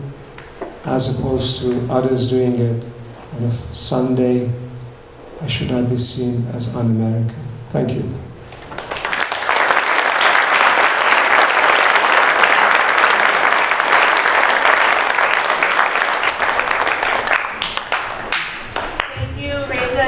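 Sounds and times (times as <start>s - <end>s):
audience applause: 8.7s - 19.2s.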